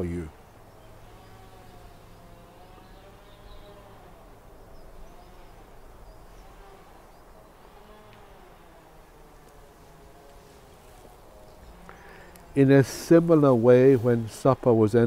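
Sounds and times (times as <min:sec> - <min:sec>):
faint bird chirps: 0:00.3 - 0:07.4
insect buzzing: 0:00.3 - 0:14.9.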